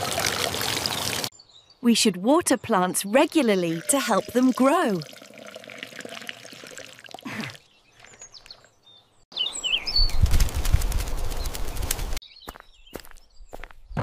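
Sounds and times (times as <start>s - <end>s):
water pouring into plant pot: 0.0s - 1.3s, 3.3s - 7.6s
bird chirps: 7.6s - 10.3s, 12.2s - 14.0s.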